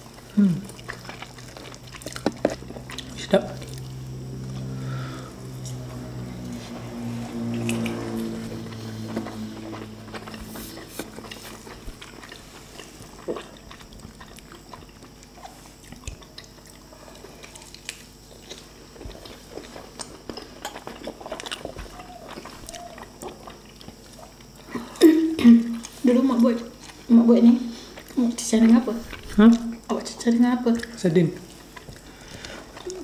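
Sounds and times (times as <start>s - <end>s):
people chewing and smacking: 0.0s - 33.0s.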